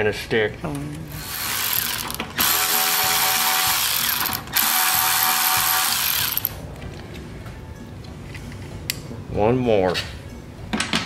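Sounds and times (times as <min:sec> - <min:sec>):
electric ratchet driving screws: 0:01.1 - 0:06.6.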